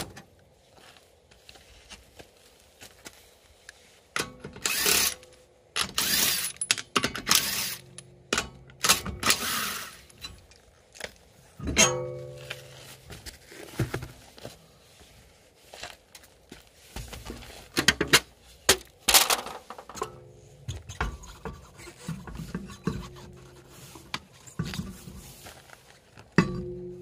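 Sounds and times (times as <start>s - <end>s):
knocks and scrapes of car wheels: 11.6s - 15.1s, 16.8s - 27.0s.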